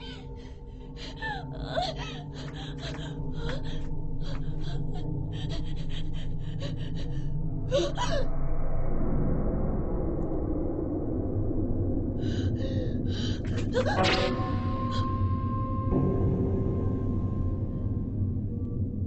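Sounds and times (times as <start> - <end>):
person gasping: 0.0 - 8.2
rough low rumble: 0.0 - 19.0
steady low drone: 0.0 - 19.0
person whimpering: 1.0 - 8.2.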